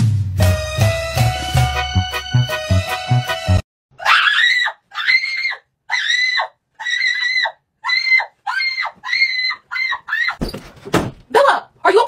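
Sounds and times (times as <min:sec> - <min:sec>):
person screaming: 0:04.0 - 0:10.3.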